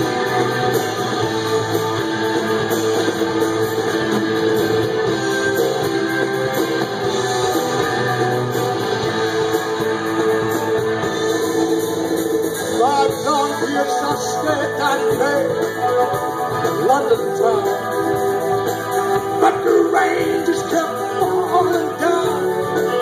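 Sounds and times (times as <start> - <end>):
drums: 0.0 - 23.0
electric guitars strumming: 0.0 - 23.0.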